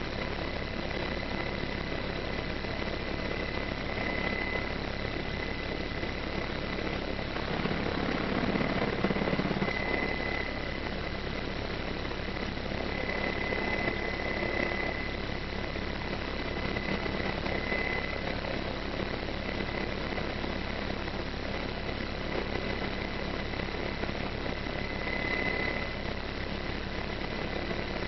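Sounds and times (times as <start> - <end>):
helicopter rotor and turbine: 0.0 - 28.0.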